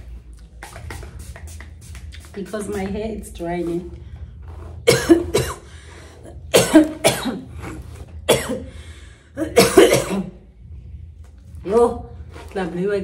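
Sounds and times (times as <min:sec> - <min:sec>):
woman coughing: 0:04.9 - 0:05.7, 0:06.4 - 0:08.7, 0:09.4 - 0:10.4.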